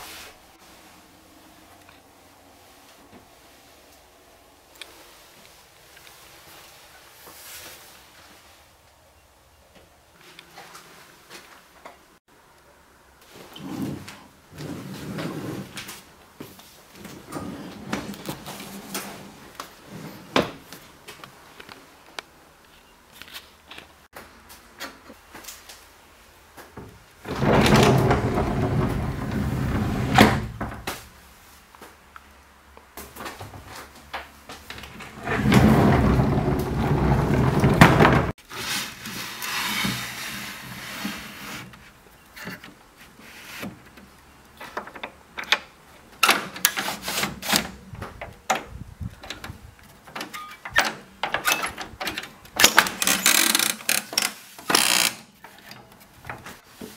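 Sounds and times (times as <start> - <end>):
wooden shutters clacking: 26.9 - 31.0, 34.6 - 38.4, 44.6 - 56.6
sliding panel rumbling on runners: 27.2 - 30.9, 34.8 - 38.4.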